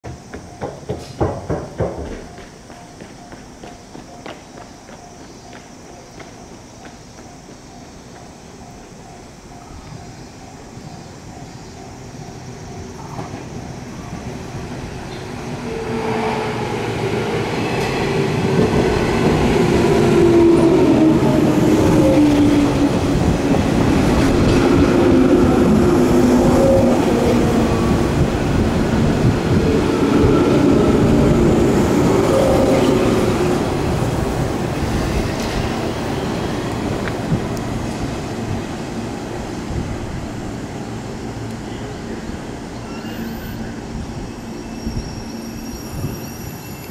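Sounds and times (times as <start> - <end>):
electric train arriving: 0.1 - 46.9
train whine falling in pitch: 15.1 - 34.2.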